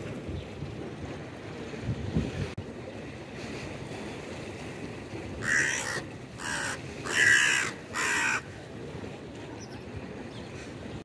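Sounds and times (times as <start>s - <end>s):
crow cawing: 5.4s - 8.5s.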